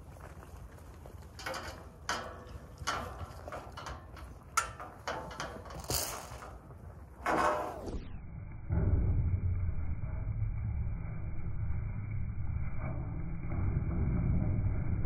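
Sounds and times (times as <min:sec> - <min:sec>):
metal hurdles rattling and scraping: 0:00.0 - 0:08.1.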